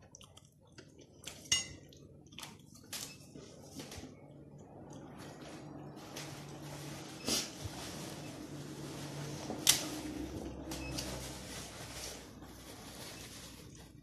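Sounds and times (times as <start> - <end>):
person chewing food: 0.0 - 2.9.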